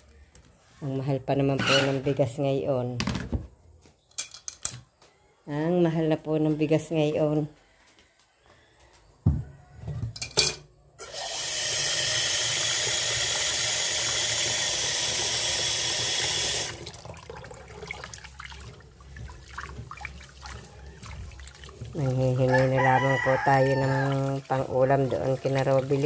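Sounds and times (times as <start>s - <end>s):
tap water running into pot: 11.0s - 26.0s.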